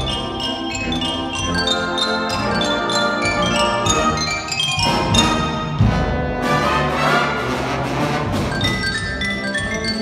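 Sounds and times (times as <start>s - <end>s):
xylophone runs: 0.0s - 5.8s, 8.4s - 10.0s.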